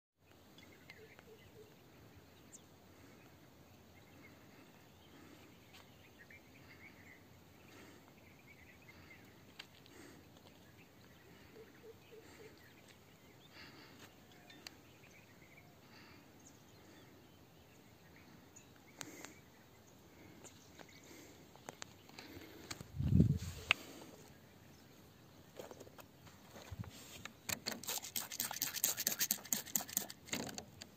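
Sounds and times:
distant bird chirps: 0.3s - 27.6s.

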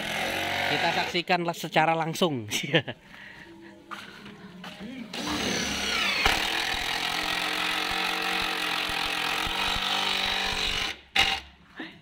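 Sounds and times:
cordless drill whining: 5.1s - 11.4s.

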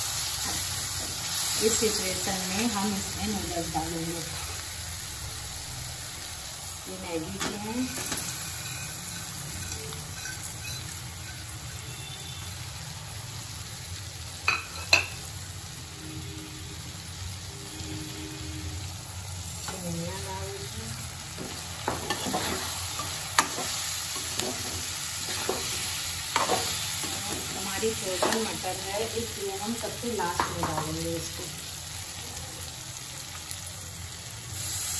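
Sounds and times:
light sizzle: 0.0s - 34.9s
spatula scraping and knocking pan: 21.4s - 28.6s.

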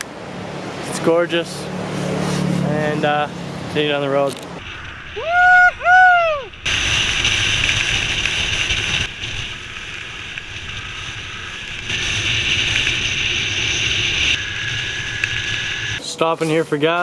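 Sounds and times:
low engine rumble: 0.0s - 17.0s
wind rushing over microphone: 3.0s - 16.0s.

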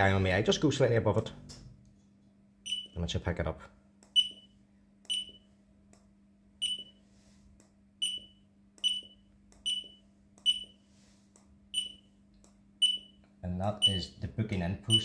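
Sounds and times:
barcode scanner beeps: 2.7s - 3.0s, 4.1s - 4.5s, 5.1s - 5.5s, 6.6s - 7.0s, 8.0s - 10.8s, 11.8s - 12.1s, 12.8s - 13.2s.

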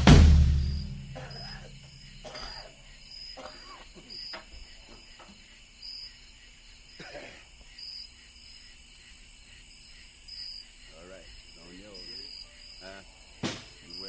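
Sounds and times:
faint voices: 10.9s - 14.0s.

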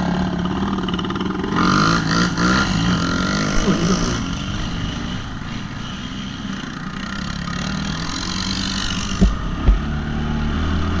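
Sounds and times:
quad bike engine running: 0.0s - 11.0s
sharp knocks: 9.1s - 9.9s.

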